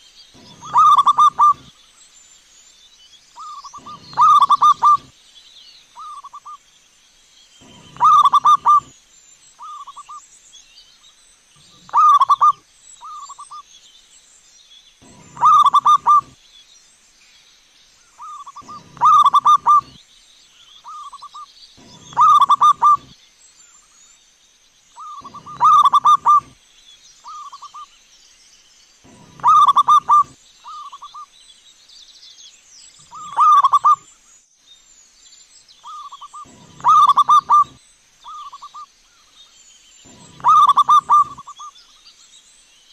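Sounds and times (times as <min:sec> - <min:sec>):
dove cooing: 0:00.4 - 0:01.7, 0:03.4 - 0:05.1, 0:07.6 - 0:08.9, 0:11.7 - 0:12.6, 0:15.0 - 0:16.4, 0:18.2 - 0:20.0, 0:20.9 - 0:23.1, 0:25.0 - 0:26.6, 0:29.1 - 0:31.0, 0:33.1 - 0:34.0, 0:35.9 - 0:38.7, 0:40.1 - 0:41.6.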